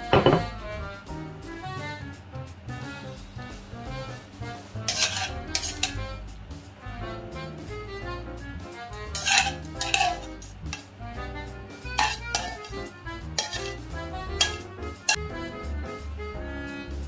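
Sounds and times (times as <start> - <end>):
instrumental music: 0.0 - 17.0
metal tongs clinking on pan and plate: 4.9 - 6.0, 9.1 - 10.9, 12.0 - 12.7, 13.4 - 13.8, 14.4 - 15.2.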